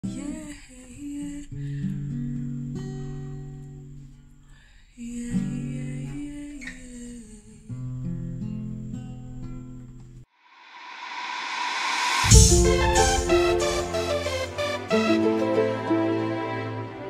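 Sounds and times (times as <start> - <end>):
acoustic guitar strummed softly: 12.2 - 17.0.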